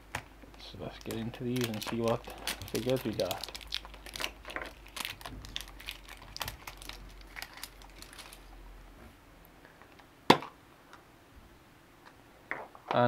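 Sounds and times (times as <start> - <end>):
wrapper crinkling: 0.9 - 8.6.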